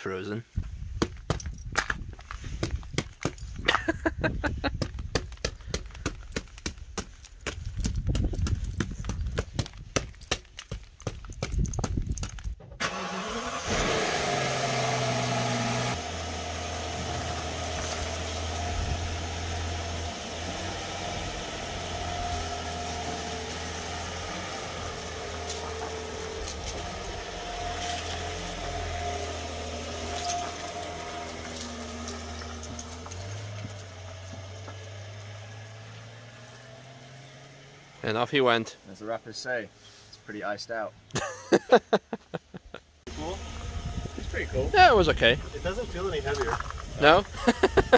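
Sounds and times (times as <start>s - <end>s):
car engine idling: 12.8s - 36.9s.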